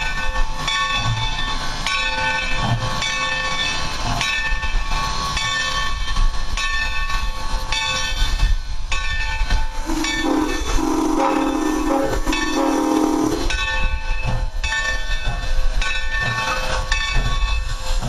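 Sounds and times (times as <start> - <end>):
locomotive bell ringing: 0.0 - 18.0
steam whistle low note: 9.8 - 13.5.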